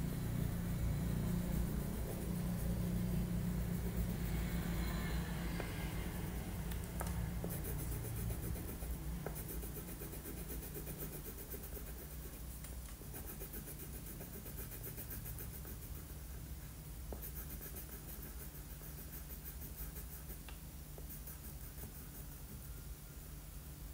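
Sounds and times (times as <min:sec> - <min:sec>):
low steady hum: 0:00.0 - 0:23.9
crayon scratching on paper: 0:07.1 - 0:16.4, 0:17.1 - 0:22.8.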